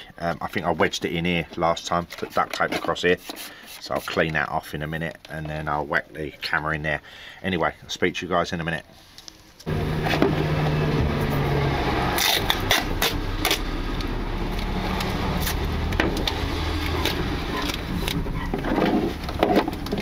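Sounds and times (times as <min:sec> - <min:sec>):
sharp knocks and scrapes: 0:01.8 - 0:04.4, 0:09.6 - 0:13.7, 0:14.9 - 0:20.0.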